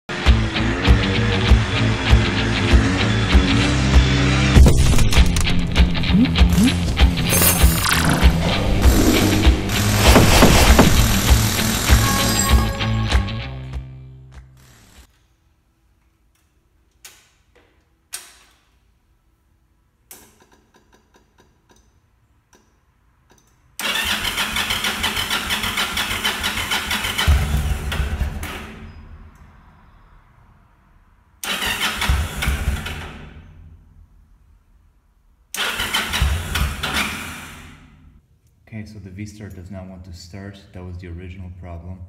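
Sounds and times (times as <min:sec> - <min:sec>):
motorcycle electric starter cranking: 0:23.8 - 0:28.3, 0:31.4 - 0:33.2, 0:35.6 - 0:37.6.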